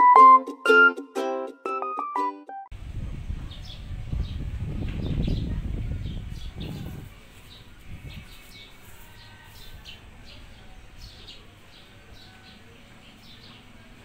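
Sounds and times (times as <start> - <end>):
small birds chirping: 3.5 - 14.0.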